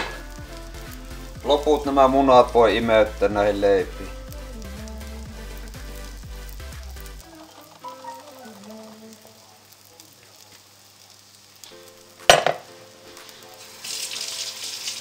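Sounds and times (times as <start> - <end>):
bread sizzling in a pan: 0.0 - 15.0
ceramic bowl clattering on plate: 12.3 - 12.6.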